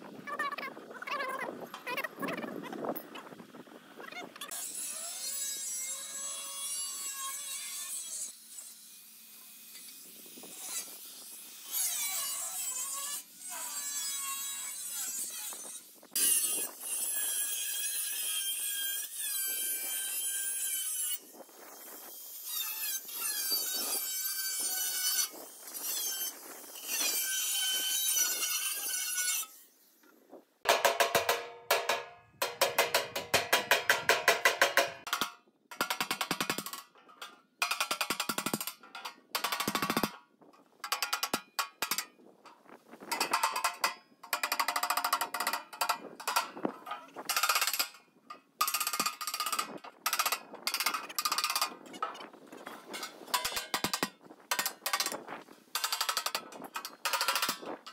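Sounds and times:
hammer striking sheet steel: 30.7s - 36.9s.

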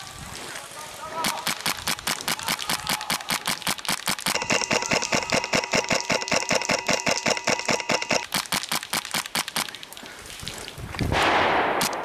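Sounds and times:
airsoft rifle full auto fire: 1.2s - 9.7s, 11.4s - 12.0s.

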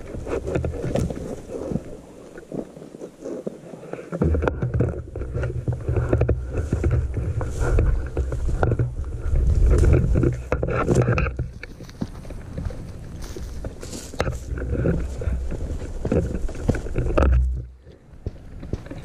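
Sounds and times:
rustling and small knocks: 0.0s - 19.0s
wind buffeting microphone: 4.4s - 19.0s.

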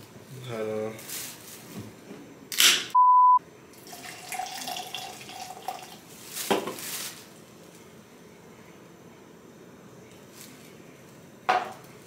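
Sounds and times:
beep tone: 3.0s - 3.4s
soda pouring and fizzing: 3.7s - 6.4s.

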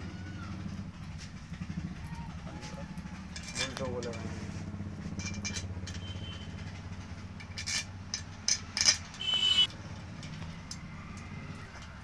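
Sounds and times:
metal bolts clinking: 0.8s - 4.3s, 5.0s - 9.4s.

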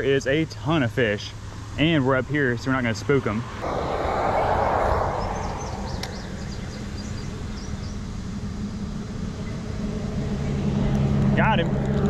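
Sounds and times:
faint bird chirps: 3.6s - 8.0s
vehicle tyre rush: 3.6s - 8.0s
low engine hum: 3.6s - 9.8s.

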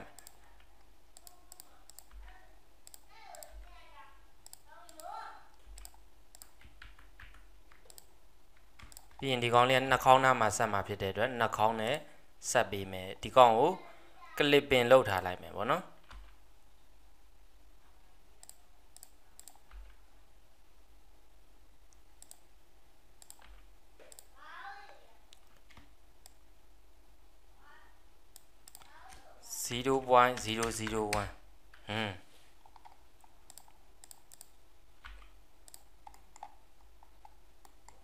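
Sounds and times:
computer mouse clicks: 0.0s - 3.6s, 4.4s - 9.2s, 18.4s - 20.0s, 21.9s - 22.5s, 23.2s - 24.3s, 25.3s - 26.4s, 28.3s - 29.2s, 32.6s - 38.0s.

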